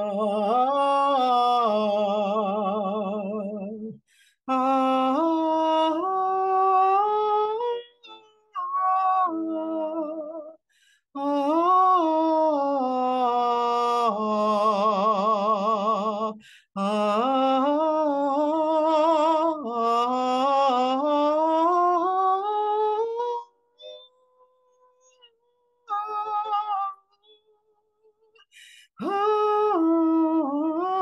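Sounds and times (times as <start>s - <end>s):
woman singing without words: 29.0s - 31.0s.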